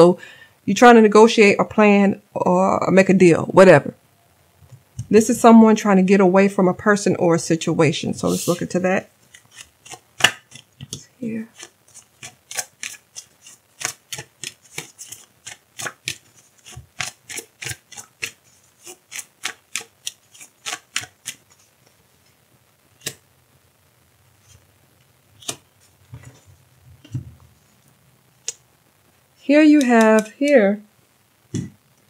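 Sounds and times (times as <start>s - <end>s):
cards being shuffled: 8.3s - 21.7s, 23.0s - 23.2s, 25.4s - 27.2s, 29.8s - 30.7s.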